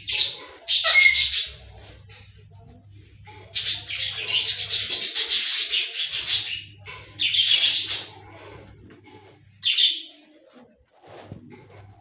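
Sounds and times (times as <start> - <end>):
parrot squawking harshly: 0.2 - 1.6.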